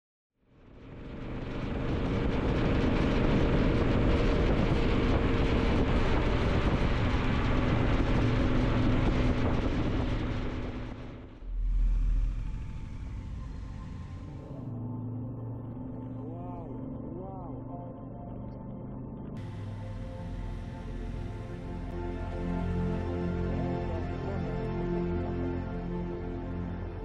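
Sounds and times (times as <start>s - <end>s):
vehicle engine running: 0.5s - 27.0s
road and wind noise: 0.7s - 16.2s, 18.6s - 23.6s
short low rumble: 3.2s - 24.4s.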